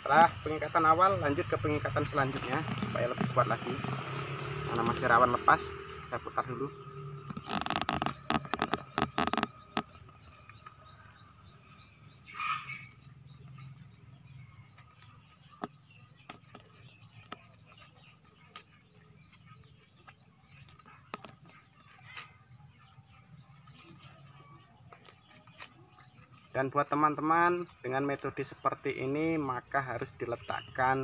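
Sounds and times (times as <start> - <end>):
plastic tape crackling: 7.3 - 9.5.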